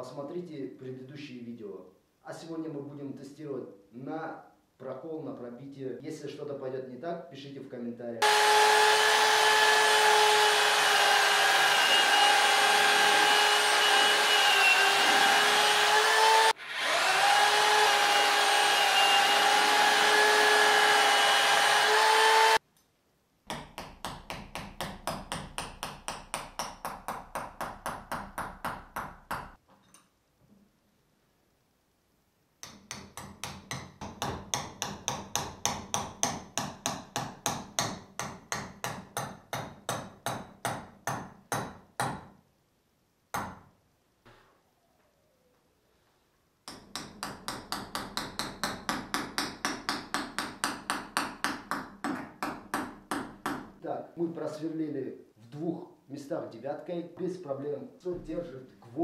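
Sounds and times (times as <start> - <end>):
hammer drill whining: 8.2 - 22.6.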